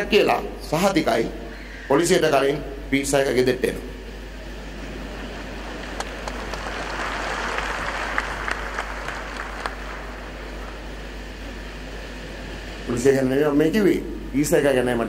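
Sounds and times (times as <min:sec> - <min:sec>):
audience applauding: 0:05.0 - 0:10.9
single claps: 0:05.6 - 0:10.8.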